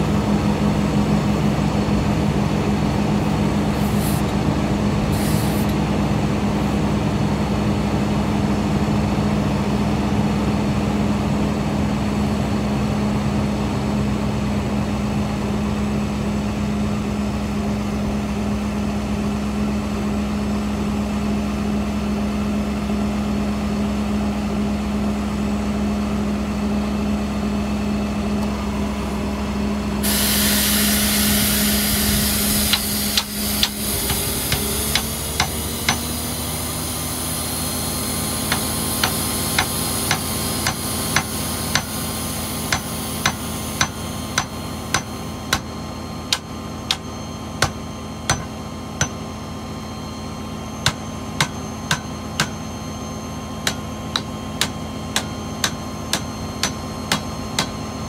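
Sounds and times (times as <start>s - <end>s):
heavy diesel engine running: 0.0s - 58.0s
air hisses: 3.8s - 4.3s, 5.1s - 5.7s, 30.0s - 35.0s.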